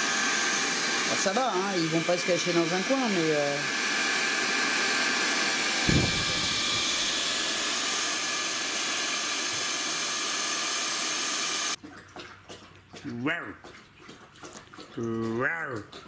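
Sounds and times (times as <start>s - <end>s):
vacuum cleaner running: 0.0s - 11.8s
low thump: 5.8s - 7.3s.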